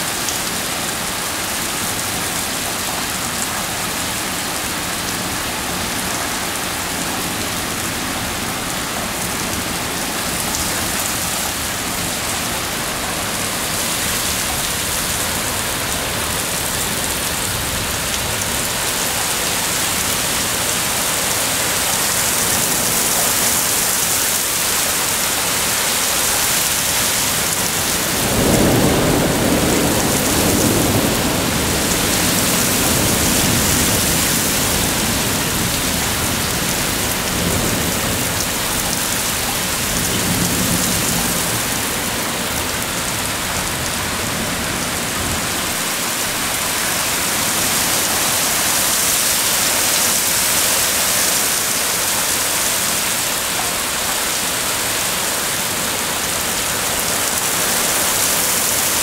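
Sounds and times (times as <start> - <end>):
heavy rain pouring: 0.0 - 59.0
thunder rumbling: 27.2 - 47.6.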